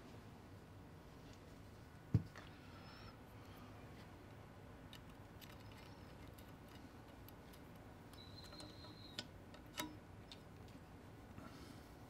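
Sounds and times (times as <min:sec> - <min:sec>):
small metal parts clicking: 0:04.8 - 0:10.8.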